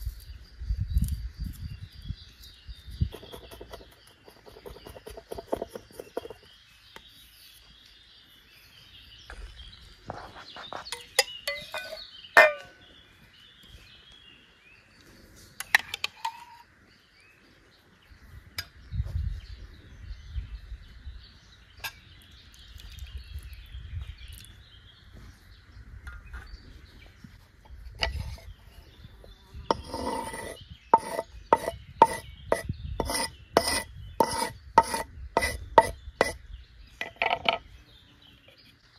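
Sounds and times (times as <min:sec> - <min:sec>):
cleaver on wooden board: 0:03.0 - 0:06.5, 0:27.9 - 0:28.5, 0:29.7 - 0:36.4.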